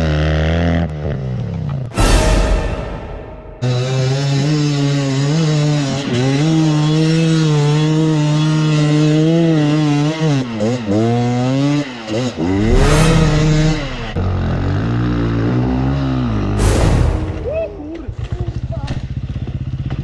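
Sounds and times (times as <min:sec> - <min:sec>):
dirt bike engine at high revs: 0:00.0 - 0:01.4, 0:04.1 - 0:16.6.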